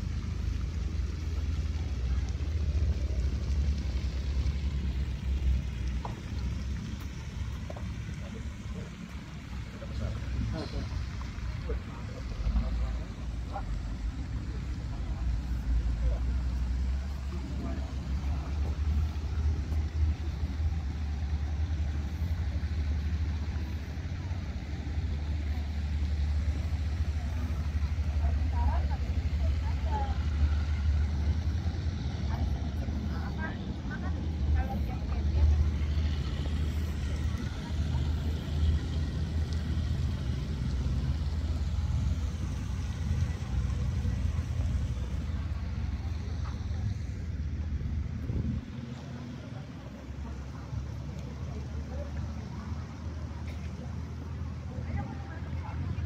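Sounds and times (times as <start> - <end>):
faint outdoor noise: 0.0 - 56.0
wind buffeting microphone: 46.6 - 49.0.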